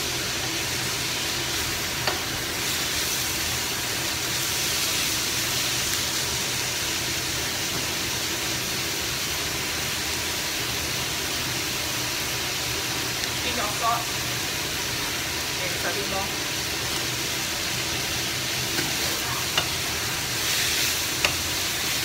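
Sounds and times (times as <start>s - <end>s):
food sizzling in a frying pan: 0.0s - 22.0s
wooden spatula stirring food: 18.5s - 22.0s.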